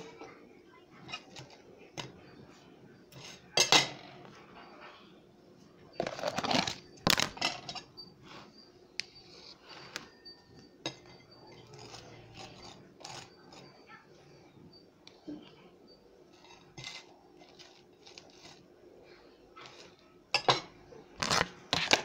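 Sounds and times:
knife clinking on ceramic plate: 3.1s - 4.0s, 10.6s - 13.9s, 16.4s - 18.6s, 19.7s - 20.7s.

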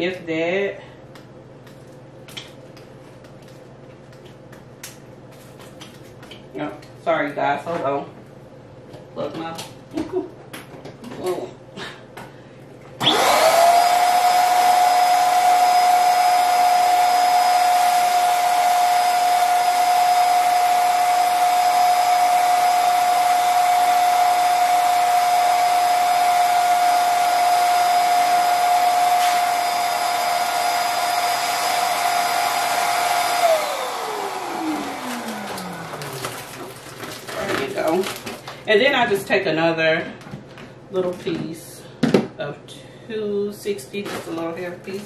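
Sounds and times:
balloon inflator motor whine: 13.0s - 37.0s.

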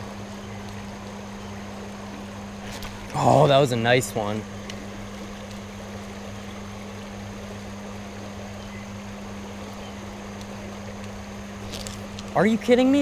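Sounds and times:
creek flowing over stones: 0.0s - 8.5s
low electrical hum: 0.0s - 13.0s.

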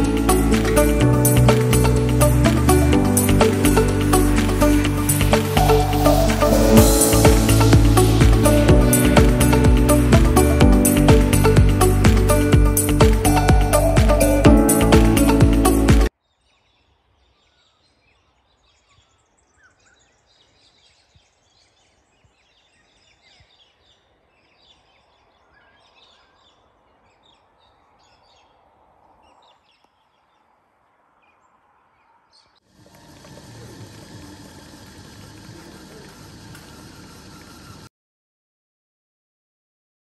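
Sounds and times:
small birds chirping: 16.2s - 37.8s
vending machine whirring: 32.8s - 37.9s.

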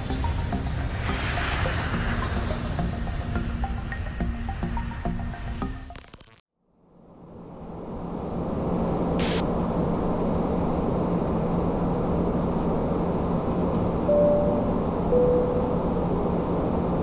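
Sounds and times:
airflow rush with low hum: 0.0s - 5.6s, 6.8s - 17.0s
short tone: 14.1s - 16.0s.

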